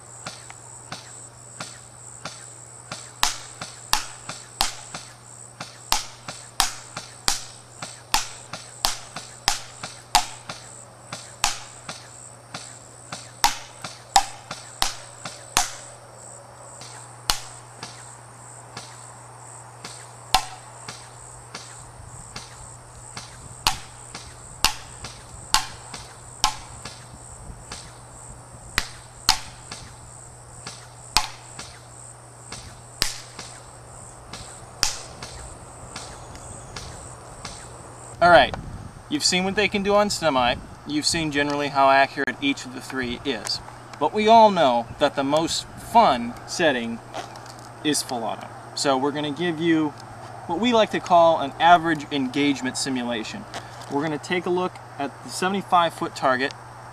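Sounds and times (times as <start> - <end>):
crickets chirring: 0.0 - 56.9
airsoft gun shots clicking: 0.3 - 16.0, 16.8 - 18.1, 19.8 - 21.8, 23.2 - 28.0, 28.8 - 30.0, 30.6 - 31.8, 32.5 - 33.7, 34.3 - 37.7.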